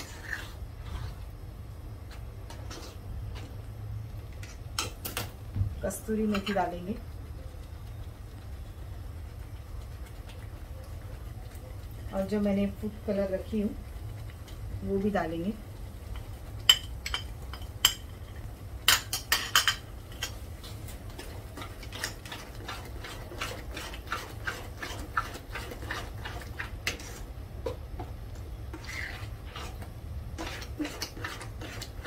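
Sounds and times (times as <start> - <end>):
metal spoon stirring in steel pot: 0.0 - 1.4, 2.1 - 3.6, 6.0 - 8.3, 16.1 - 32.0.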